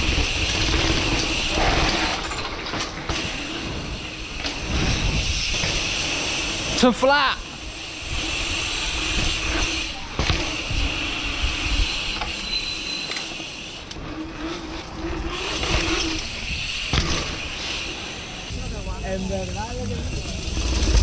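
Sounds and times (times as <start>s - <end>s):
bike tyres rolling on paving: 0.0s - 21.0s
bike knocking over bumps: 16.9s - 17.6s.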